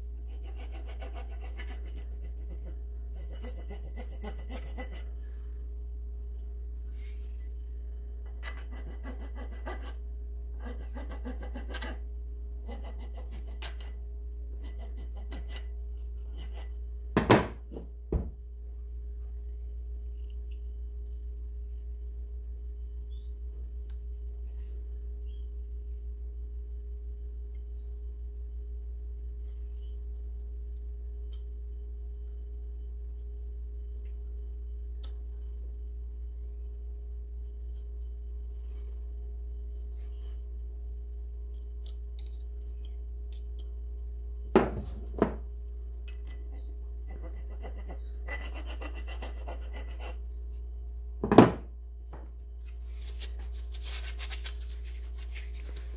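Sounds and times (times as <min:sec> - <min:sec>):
steady low hum: 0:00.0 - 0:55.9
file rasping on wood: 0:00.3 - 0:05.1, 0:08.5 - 0:10.0, 0:10.6 - 0:12.0, 0:12.7 - 0:13.9, 0:47.1 - 0:50.2.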